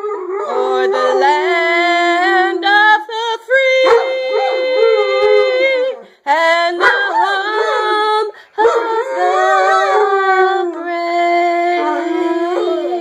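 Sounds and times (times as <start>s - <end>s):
dog howling: 0.0s - 2.4s, 3.8s - 6.1s, 6.8s - 10.8s, 11.7s - 13.0s.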